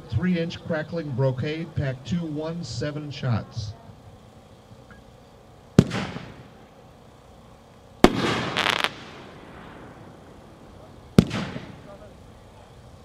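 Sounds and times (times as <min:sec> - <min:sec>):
firework crackling: 0:00.0 - 0:13.0
firework shell bursting: 0:04.2 - 0:06.7, 0:07.7 - 0:12.8
firework mortar launch bang: 0:05.8 - 0:06.5, 0:08.0 - 0:12.0.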